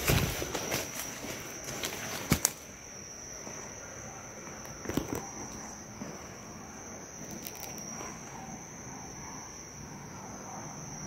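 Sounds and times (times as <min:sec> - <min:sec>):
rustle in undergrowth: 0:00.0 - 0:02.7
insects chirring drone: 0:00.0 - 0:11.0.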